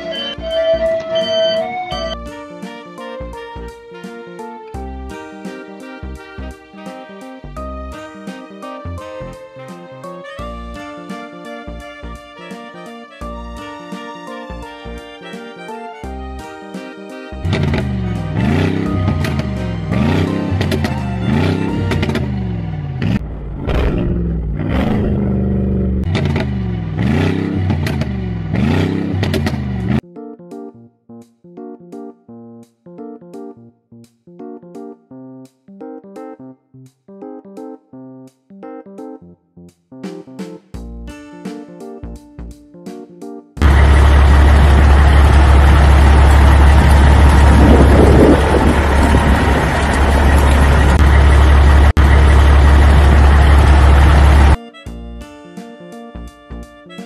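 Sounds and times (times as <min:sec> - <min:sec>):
vehicle engine revving: 0:17.4 - 0:30.0, 0:43.6 - 0:54.6.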